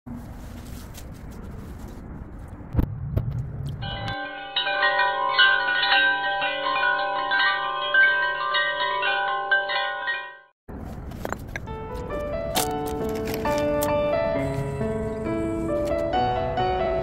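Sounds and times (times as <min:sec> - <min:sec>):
outdoor rustling: 0:00.1 - 0:16.2
chimes ringing: 0:03.8 - 0:10.5.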